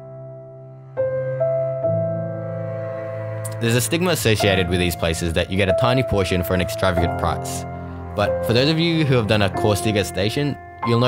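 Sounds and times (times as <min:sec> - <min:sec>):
slow background music: 0:00.0 - 0:11.0.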